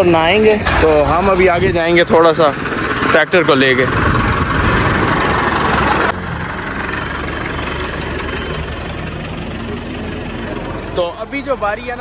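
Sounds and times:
tractor diesel engine running: 0.0s - 12.0s
loud rushing noise: 0.6s - 6.7s.

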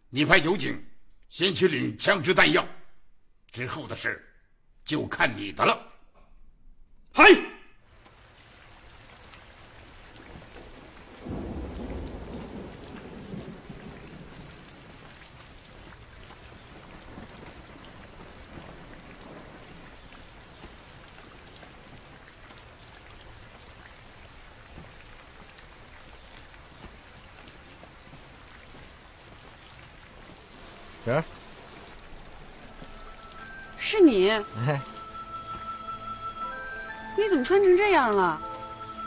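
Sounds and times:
rain falling on water: 7.8s - 39.0s
low rumble of thunder: 8.7s - 35.0s.

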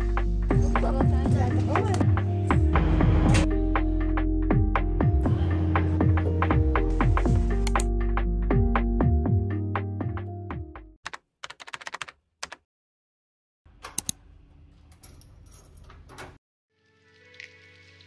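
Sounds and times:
music: 0.0s - 11.0s, 16.7s - 18.0s
keyboard typing clicks: 11.1s - 12.6s.

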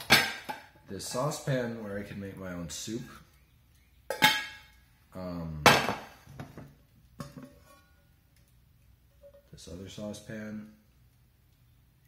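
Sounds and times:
metal saucepans clanking: 4.1s - 4.8s, 7.2s - 8.0s.

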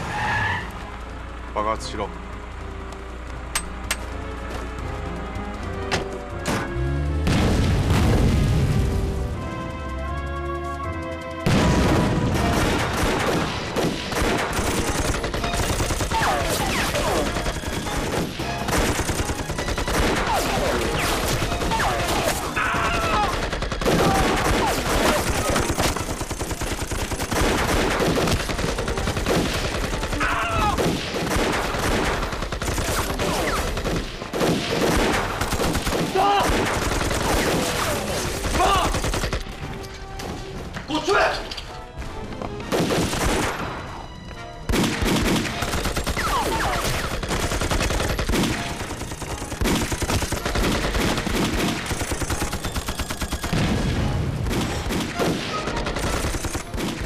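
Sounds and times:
film music: 0.0s - 57.0s
rapid gunfire: 11.1s - 39.6s, 42.7s - 43.6s, 44.7s - 57.0s
people shouting: 21.6s - 25.6s, 30.1s - 30.8s, 36.0s - 36.6s, 37.8s - 39.0s.

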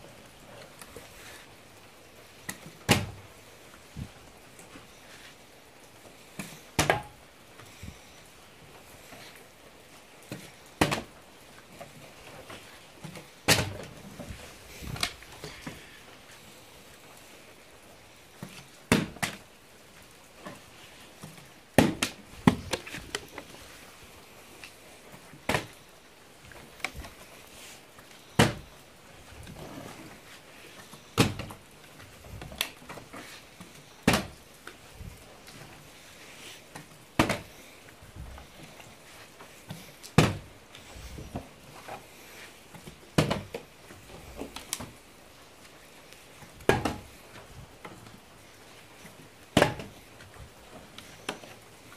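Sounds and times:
plastic bottle thudding on floor: 46.7s - 47.0s.

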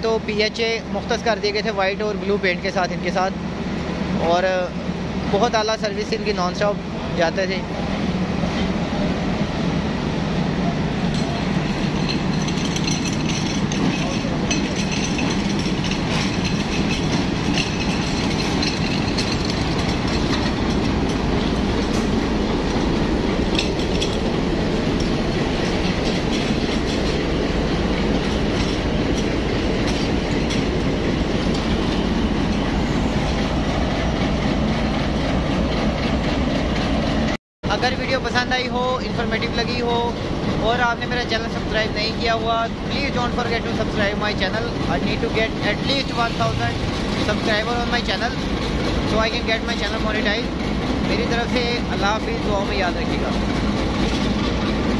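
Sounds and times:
diesel locomotive engine rumble: 0.0s - 54.9s
metallic clanks: 11.0s - 33.5s.

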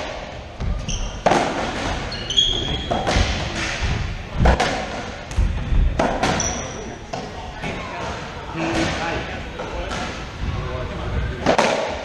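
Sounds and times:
racquetball smacking: 0.0s - 7.4s
sneakers squeaking on floor: 0.6s - 3.4s, 6.2s - 6.9s.

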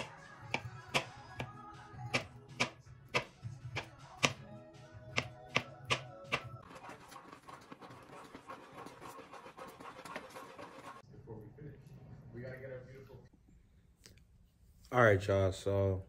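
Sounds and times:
background music: 0.0s - 7.2s
knife tapping on plastic cutting board: 2.1s - 4.4s, 5.2s - 6.4s.

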